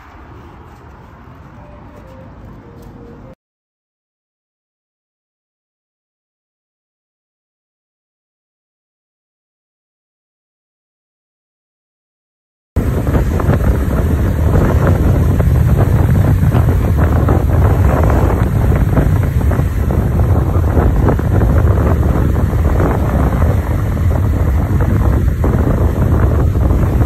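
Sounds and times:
wind buffeting microphone: 0:12.8 - 0:27.0.

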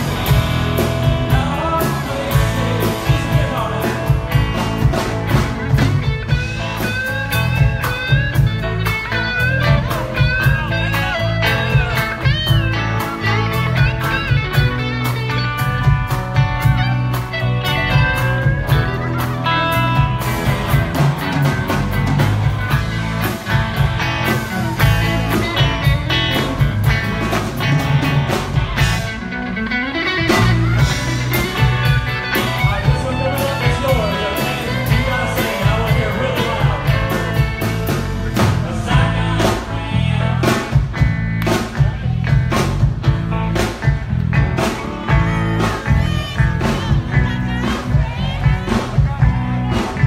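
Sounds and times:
bass guitar: 0:00.0 - 0:50.0
drum kit beats: 0:00.0 - 0:50.0
electric guitars: 0:00.0 - 0:50.0
keyboard: 0:00.0 - 0:50.0.

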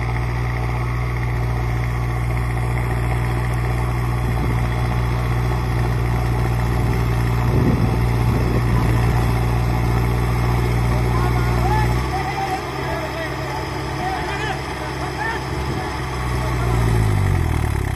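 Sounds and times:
tractor diesel engine running: 0:00.0 - 0:17.9.

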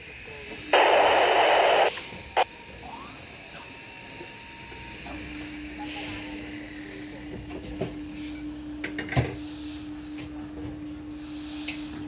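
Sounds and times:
steady machine hum: 0:00.0 - 0:04.0.

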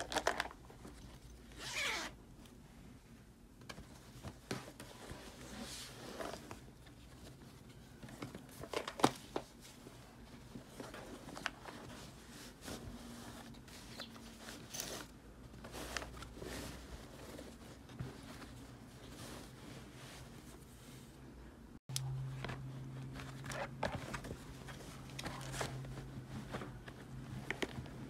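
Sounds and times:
fabric rustling: 0:09.6 - 0:21.3, 0:22.2 - 0:28.0.

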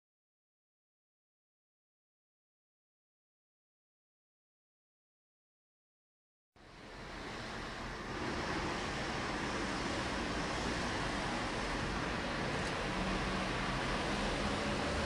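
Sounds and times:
steady rushing noise: 0:06.6 - 0:15.0.

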